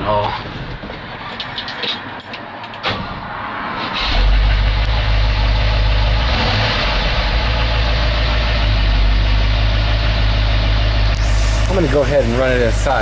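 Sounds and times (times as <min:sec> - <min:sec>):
engine starting and idling: 0:03.8 - 0:13.0.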